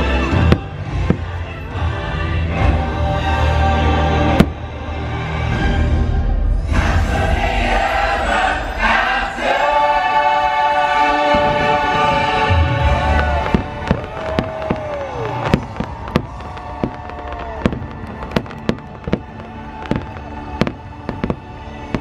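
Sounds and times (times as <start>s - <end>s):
choral soundtrack: 0.0s - 22.0s
heavy low firework thumps: 0.3s - 1.5s, 11.3s - 22.0s
fireworks bangs and pops: 0.4s - 1.4s, 11.3s - 22.0s
falling firework whistles: 13.0s - 22.0s.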